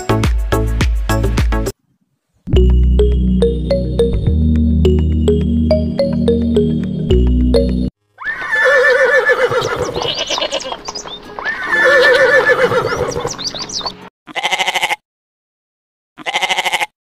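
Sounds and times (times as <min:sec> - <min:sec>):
horse whinny: 0:08.2 - 0:10.7, 0:11.4 - 0:13.3.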